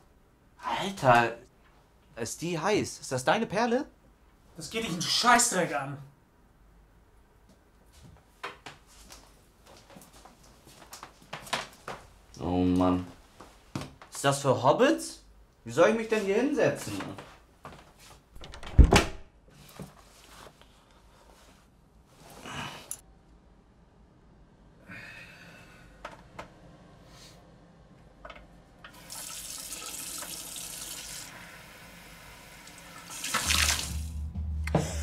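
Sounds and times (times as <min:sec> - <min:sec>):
tap water running into sink: 0:28.9 - 0:31.3, 0:32.6 - 0:34.1
deep low drone: 0:33.7 - 0:35.0.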